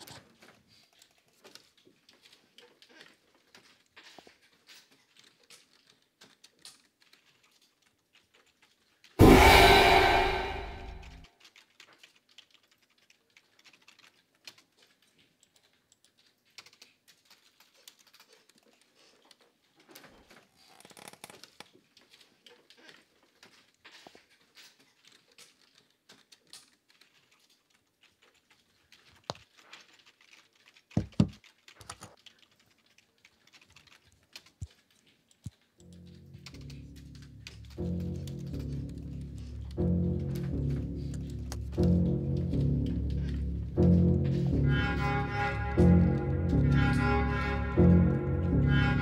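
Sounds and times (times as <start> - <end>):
typing on computer keyboard: 0.0 - 9.1, 11.4 - 20.4, 21.0 - 38.4.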